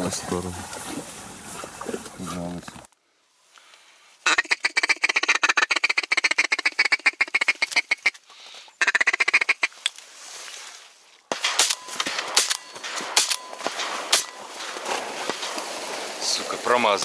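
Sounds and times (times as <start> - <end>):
ducks quacking: 4.2 - 8.2
shotgun shot: 11.3 - 15.9.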